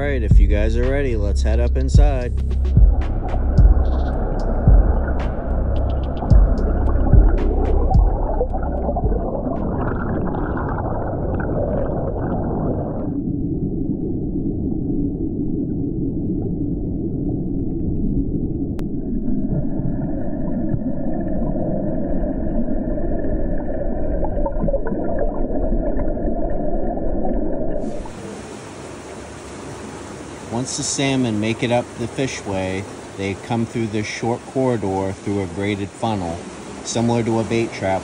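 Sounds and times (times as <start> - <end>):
muffled underwater water churning: 0.0 - 38.0
hiss of flowing water: 27.8 - 38.0.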